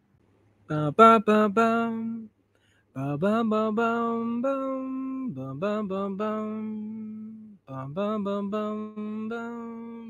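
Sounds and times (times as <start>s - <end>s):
man singing wordless tune: 0.7s - 2.3s, 2.9s - 10.0s.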